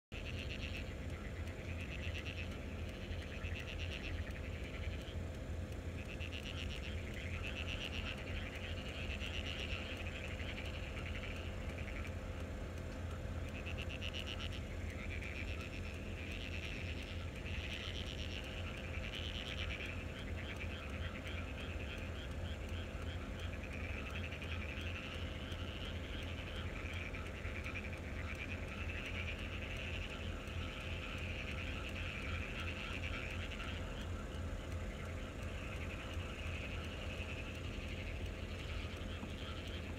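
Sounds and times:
steady low hum: 0.1 - 39.9
frogs croaking: 0.2 - 39.9.

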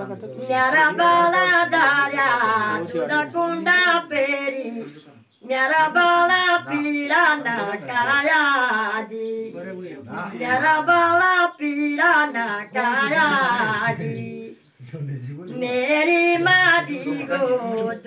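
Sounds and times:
women singing: 0.0 - 14.7, 15.6 - 18.0.

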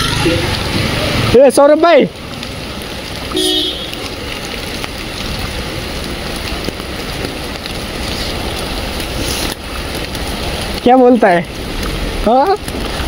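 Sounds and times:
heavy rain on wet street: 0.0 - 13.0.

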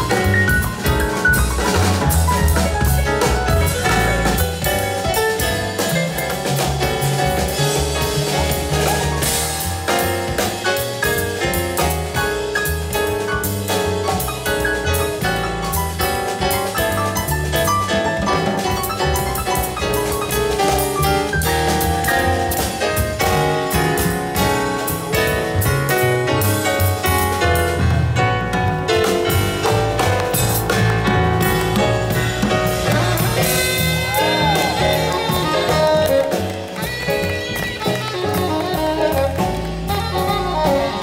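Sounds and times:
drum kit with cymbals: 0.0 - 41.0
upright bass: 0.0 - 41.0.

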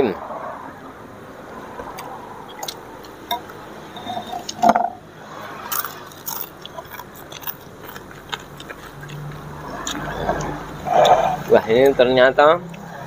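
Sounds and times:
slurping and chewing: 1.9 - 3.2, 5.2 - 11.9.

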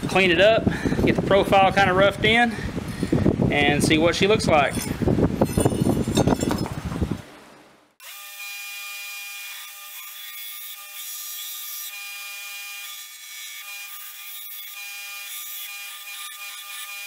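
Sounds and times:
belt grinder whine: 8.0 - 17.0.

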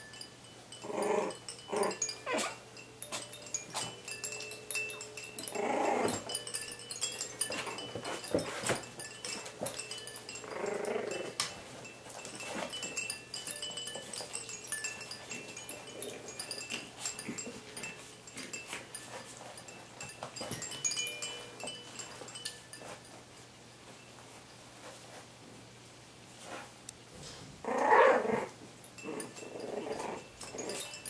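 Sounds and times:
scratching on bedding: 0.0 - 23.2
tinkling chime melody: 0.0 - 23.2, 29.0 - 31.0
puppies growling: 0.7 - 2.6, 4.3 - 8.5, 9.4 - 11.5, 27.6 - 31.0.

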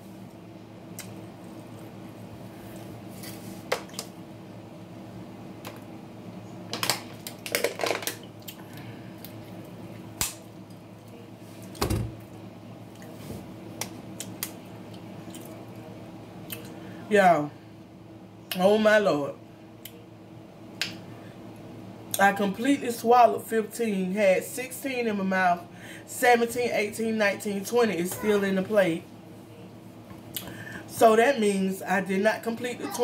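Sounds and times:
steady low hum: 0.0 - 33.0
chewing and mouth noises: 14.2 - 16.8.

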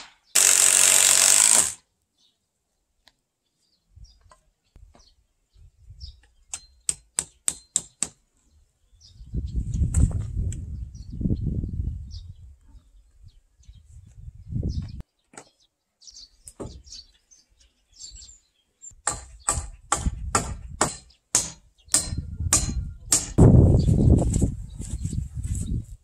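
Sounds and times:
tool striking wooden rafters: 0.0 - 1.8, 6.2 - 8.2, 15.2 - 15.6, 16.5 - 16.9, 19.0 - 23.4
birds chirping: 2.0 - 25.8.

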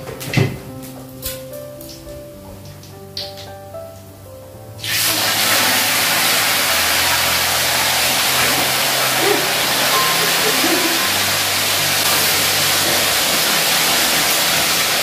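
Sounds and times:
quiet background music: 0.0 - 15.0
fish sizzling in hot oil: 4.8 - 15.0.

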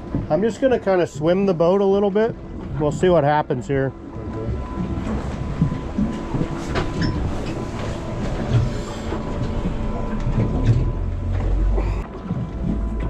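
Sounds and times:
boat engine rumbling: 0.0 - 13.0
hull knocks and rattles: 4.0 - 13.0.

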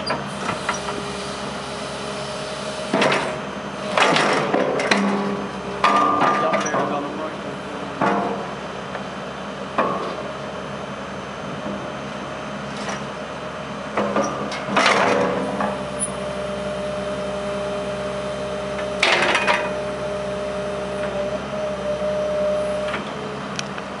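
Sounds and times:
hydraulic whine: 0.0 - 7.9, 14.2 - 23.6
diesel engine running: 0.0 - 24.0.

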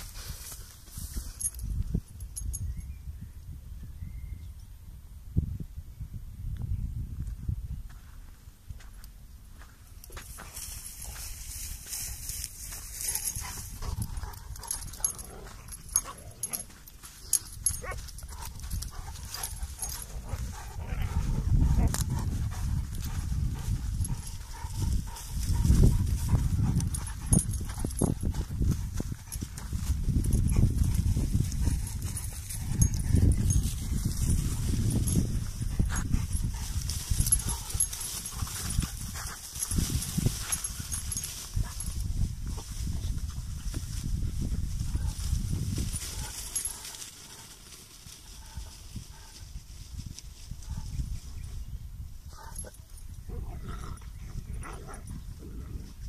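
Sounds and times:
wind rumble on microphone: 0.0 - 56.0
footsteps on dirt track: 7.2 - 49.4.

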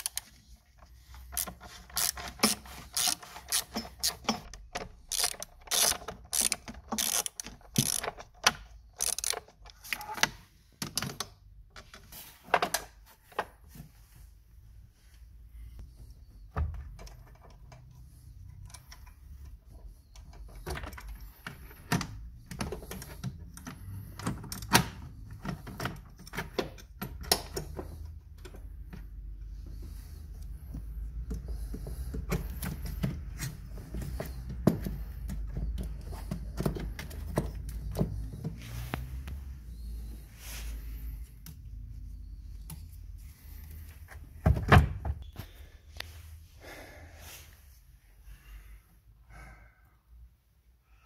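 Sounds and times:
tools clicking and knocking on metal: 1.1 - 13.5, 31.1 - 38.6.

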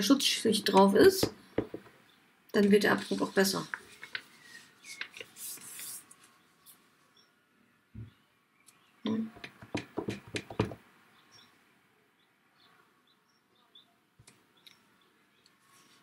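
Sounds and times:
quick knocks and taps: 1.2 - 1.9, 9.3 - 10.8
stamp block knocking on desk: 1.2 - 1.9, 9.3 - 10.8.

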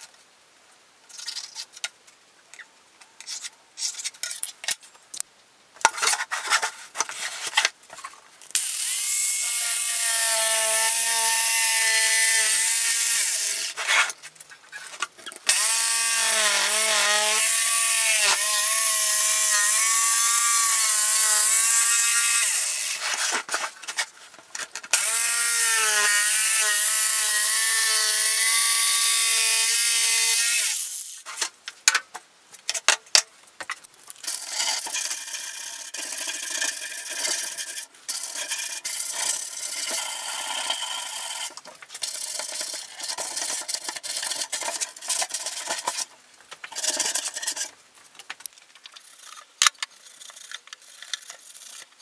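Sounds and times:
electric jigsaw cutting plywood: 15.5 - 23.1, 24.9 - 30.9.

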